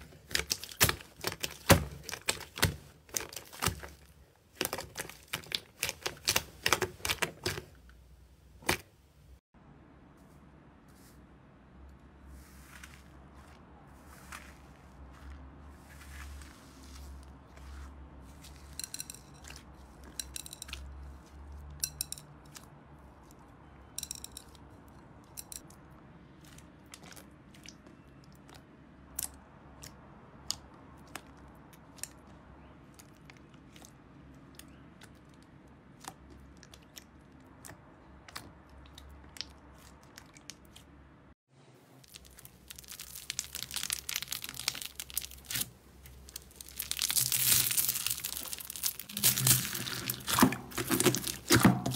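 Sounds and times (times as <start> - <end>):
foam beads crunching: 42.0 - 51.9.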